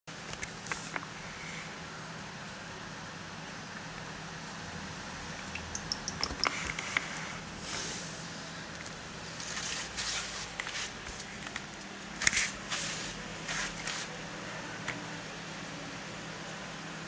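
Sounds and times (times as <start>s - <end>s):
fur rubbing on microphone: 9.4s - 11.3s, 12.4s - 14.2s.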